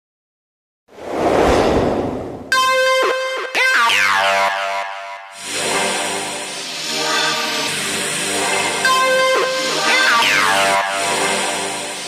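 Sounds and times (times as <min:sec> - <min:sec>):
synthesizer held tone: 0:08.8 - 0:11.4.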